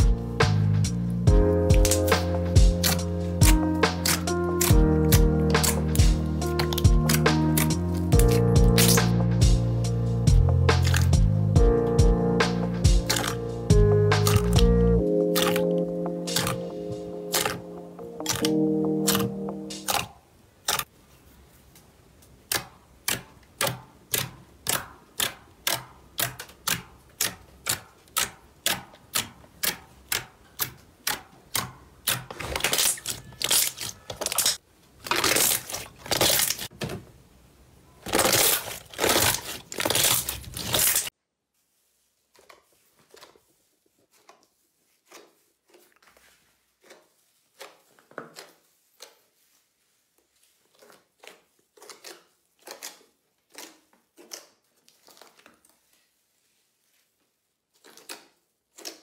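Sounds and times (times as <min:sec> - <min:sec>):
slime crackling when kneaded: 0:01.6 - 0:09.8, 0:10.5 - 0:11.5, 0:12.4 - 0:20.9, 0:22.4 - 0:36.7, 0:38.0 - 0:41.1, 0:44.1 - 0:56.2
slime air pockets popping: 0:01.7 - 0:09.2, 0:10.6 - 0:11.4, 0:12.4 - 0:20.9.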